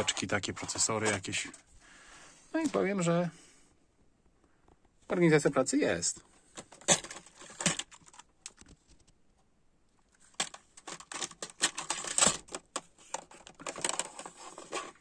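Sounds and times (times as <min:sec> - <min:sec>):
components clattering: 0:00.0 - 0:01.7, 0:04.6 - 0:09.2, 0:10.2 - 0:15.0
plastic drawers clicking: 0:06.6 - 0:08.6, 0:10.3 - 0:15.0.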